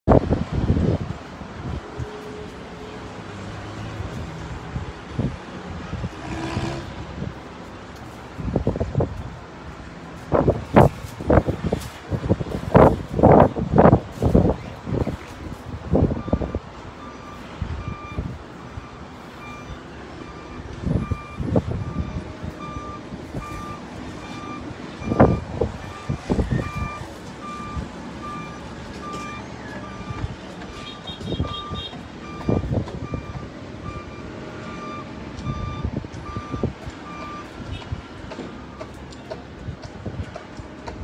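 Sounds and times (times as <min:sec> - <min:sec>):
low rumbles and thumps: 0:04.0 - 0:16.8, 0:20.7 - 0:34.0, 0:35.4 - 0:41.0
vehicle reversing alarm beeping: 0:08.3 - 0:08.8, 0:12.8 - 0:37.9, 0:38.6 - 0:39.4.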